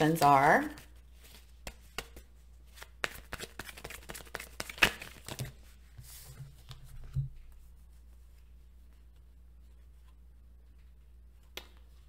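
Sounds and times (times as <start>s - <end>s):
cards being shuffled: 0.8s - 5.6s.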